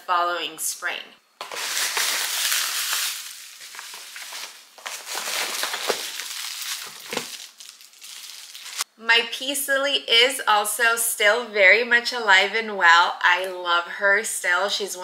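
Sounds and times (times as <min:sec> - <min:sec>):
packaging crinkling and rustling: 0:01.4 - 0:08.9.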